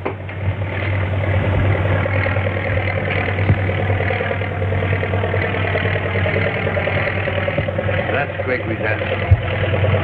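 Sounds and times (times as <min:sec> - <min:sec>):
airplane piston engine droning: 0:00.0 - 0:10.0.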